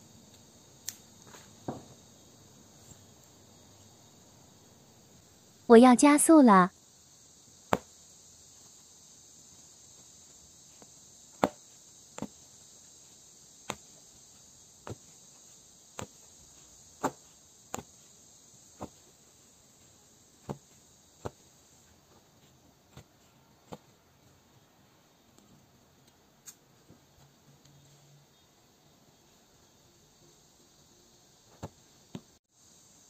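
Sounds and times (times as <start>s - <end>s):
faint steady high hiss: 0.0s - 33.0s
punch needle clicking through cloth: 13.6s - 14.0s.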